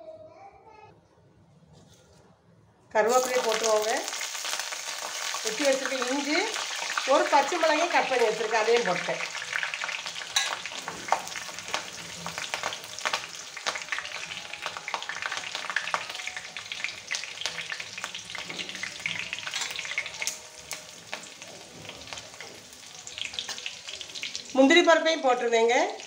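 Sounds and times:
spices sizzling in hot oil: 0:03.0 - 0:26.0.

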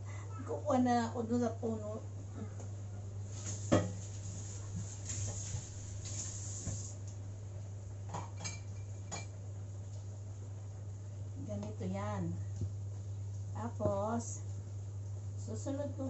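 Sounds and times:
steady low hum: 0:00.0 - 0:16.0
dishes clinking: 0:08.1 - 0:09.4.

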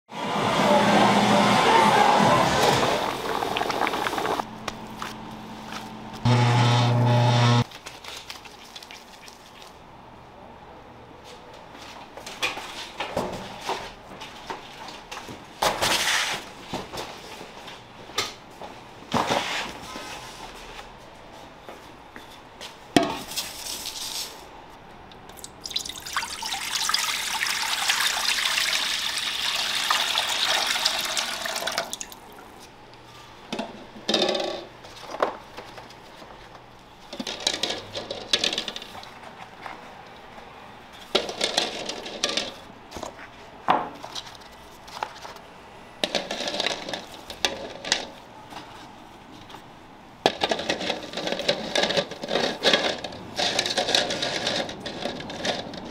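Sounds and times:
water pouring into metal pot: 0:02.7 - 0:04.4, 0:25.4 - 0:32.2
kitchen knocks and clatters: 0:41.1 - 0:44.3.

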